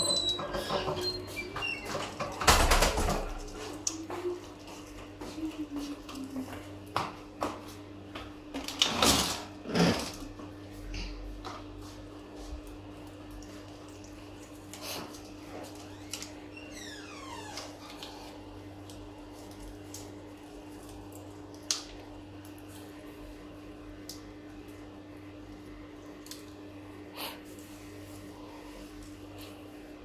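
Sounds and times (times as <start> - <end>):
falling squeak: 0.0 - 2.0.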